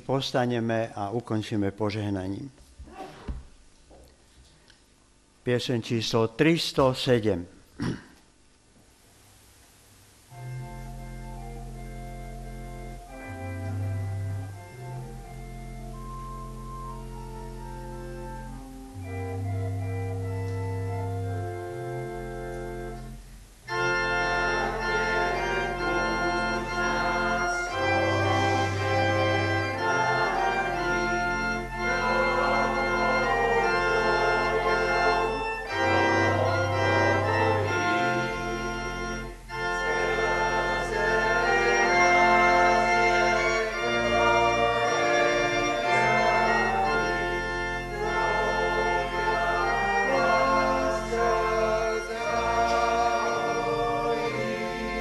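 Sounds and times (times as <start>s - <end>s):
church organ playing hymn: 10.3s - 55.0s
congregation singing: 10.4s - 55.0s.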